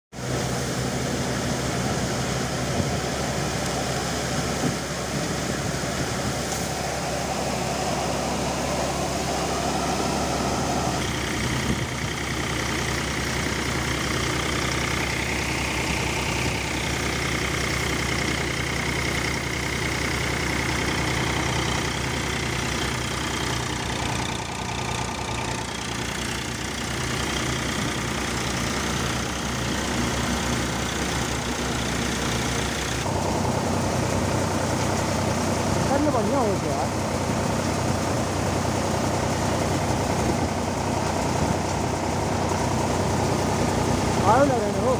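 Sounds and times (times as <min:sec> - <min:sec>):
tractor engine hum: 0:00.1 - 0:44.9
thresher mechanical drone: 0:00.2 - 0:44.9
steady high whine: 0:00.5 - 0:26.3.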